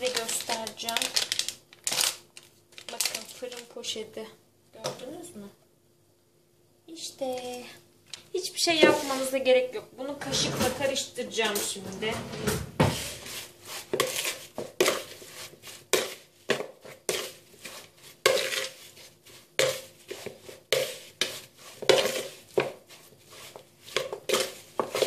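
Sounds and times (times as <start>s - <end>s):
metal spoon stirring in bowl: 12.9s - 25.0s.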